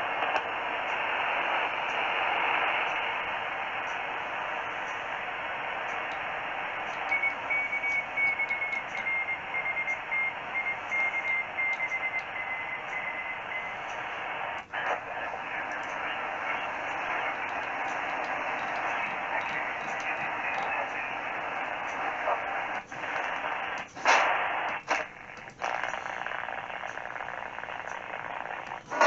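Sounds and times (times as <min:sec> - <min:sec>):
shortwave radio hiss: 0:00.0 - 0:29.0
receiver click: 0:01.7 - 0:29.0
morse tone beeping: 0:06.7 - 0:14.3.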